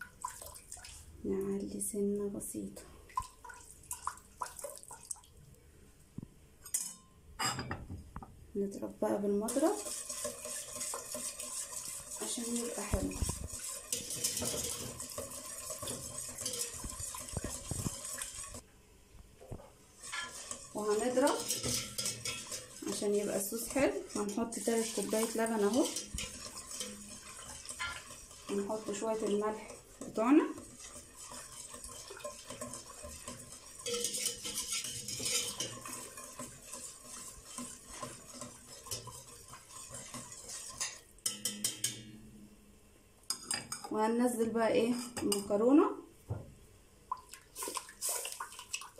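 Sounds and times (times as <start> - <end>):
whisk scraping metal pot: 9.4 - 18.6, 19.6 - 42.0.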